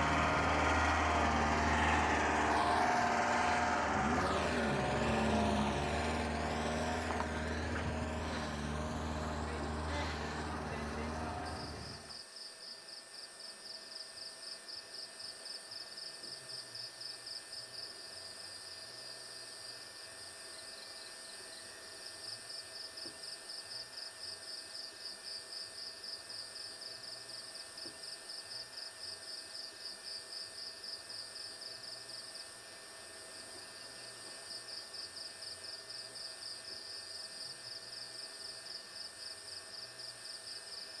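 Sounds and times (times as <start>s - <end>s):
voices: 0.0s - 12.1s
vehicle: 0.0s - 12.2s, 31.6s - 41.0s.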